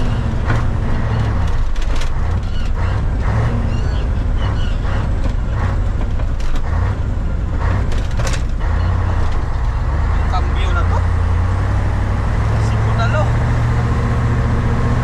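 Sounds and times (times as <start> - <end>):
short engine clatters: 0.0 - 11.1
diesel truck engine under load: 0.0 - 15.0.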